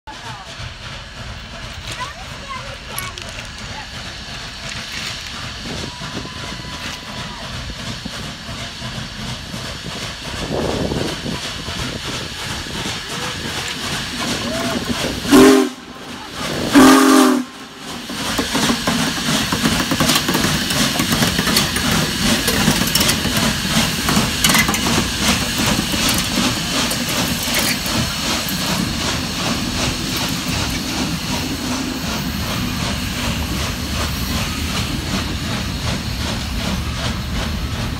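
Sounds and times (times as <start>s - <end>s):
locomotive wheels and running gear: 0.1s - 17.1s, 17.8s - 37.9s
steam hissing: 0.1s - 37.9s
steam whistle blasts: 14.5s - 15.9s, 16.6s - 17.9s.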